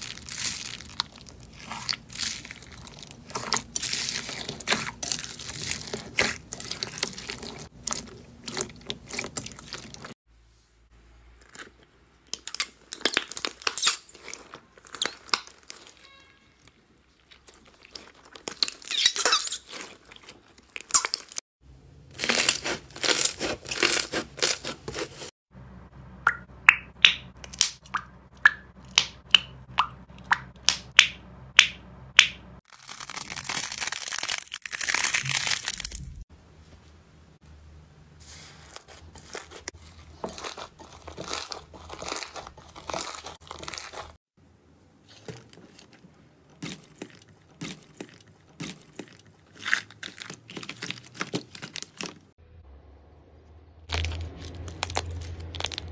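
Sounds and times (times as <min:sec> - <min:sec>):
slime squishing and crackling: 0:00.0 - 0:10.2, 0:11.4 - 0:21.4, 0:22.1 - 0:25.3, 0:32.7 - 0:36.2, 0:38.8 - 0:44.2, 0:45.0 - 0:52.3, 0:53.9 - 0:55.9
slime tearing: 0:53.9 - 0:55.9.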